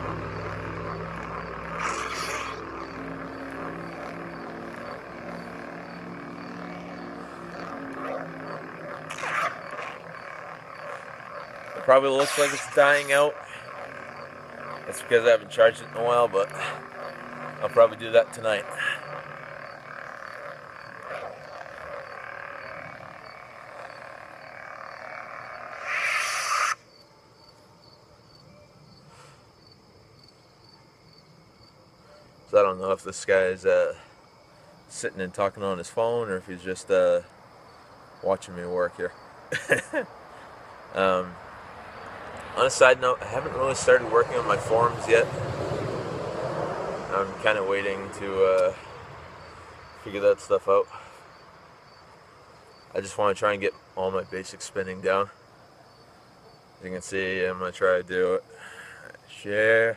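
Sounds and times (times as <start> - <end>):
lightsaber electronic hum: 0.0 - 26.9, 42.4 - 45.6, 47.0 - 50.8
faint crickets chirping: 0.0 - 59.9
lightsaber swing swells: 0.1 - 4.8, 11.9 - 13.6.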